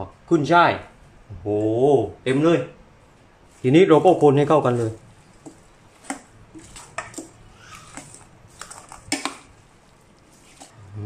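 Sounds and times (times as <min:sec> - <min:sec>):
metal spoon tossing wet salad: 0:04.0 - 0:10.8.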